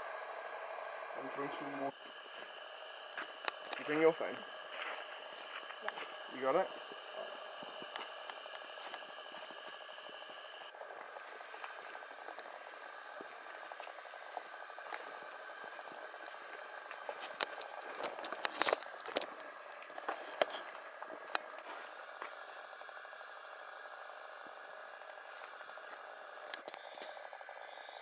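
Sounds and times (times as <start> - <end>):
insect chorus buzzing: 0.0 - 21.7.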